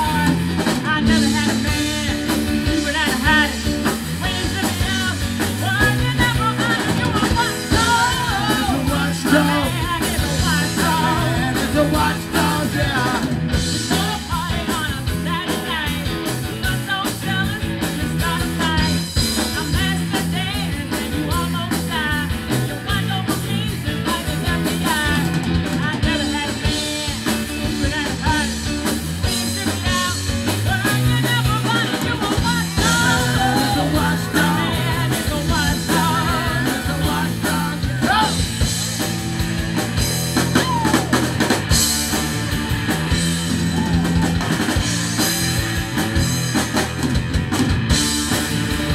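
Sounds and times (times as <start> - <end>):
woman singing: 0.0 - 38.5
drum kit beat: 0.0 - 48.9
electric bass: 0.0 - 48.9
electric guitars: 0.0 - 48.9.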